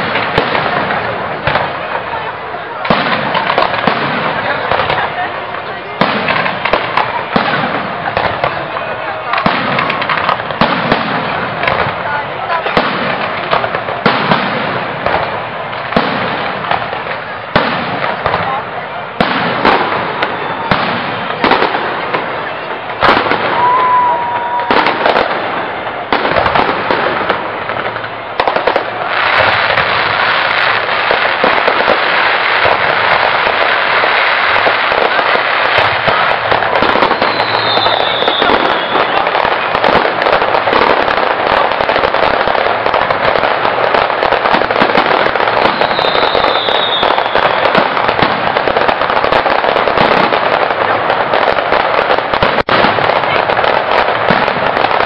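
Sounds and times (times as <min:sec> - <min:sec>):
firework bangs: 0:00.0 - 0:55.0
fireworks crackling: 0:00.0 - 0:55.0
firework whistle: 0:19.6 - 0:26.6, 0:33.6 - 0:40.9, 0:45.4 - 0:48.3.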